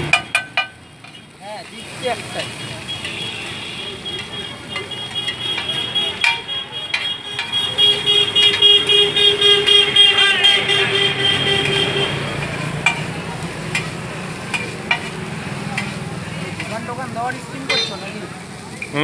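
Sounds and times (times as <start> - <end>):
vehicle horns honking: 0.0 - 13.0, 17.6 - 18.4
traffic noise: 0.0 - 19.0
metal spatula clicking on griddle: 13.7 - 16.0.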